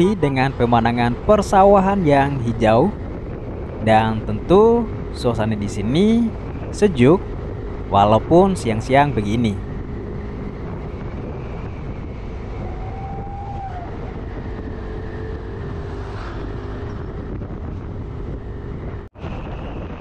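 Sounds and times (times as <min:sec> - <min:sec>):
scooter engine hum: 0:00.0 - 0:19.2
wind and road noise: 0:00.0 - 0:20.0.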